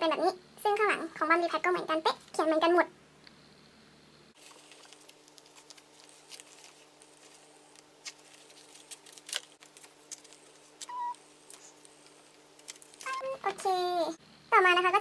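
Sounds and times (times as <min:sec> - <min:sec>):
faint steady hum: 0:00.0 - 0:15.0
plastic sleeves crinkling: 0:04.4 - 0:13.6.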